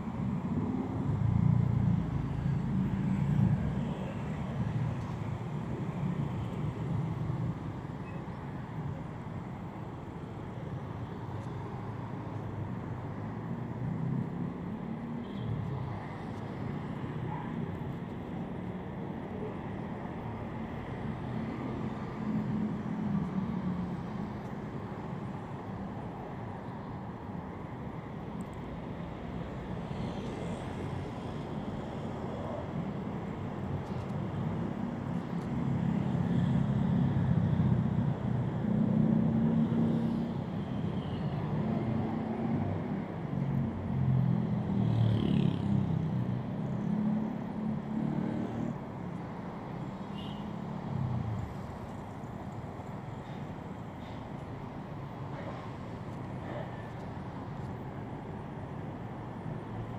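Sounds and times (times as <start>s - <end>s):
cars and motorbikes passing: 28.8s - 59.9s.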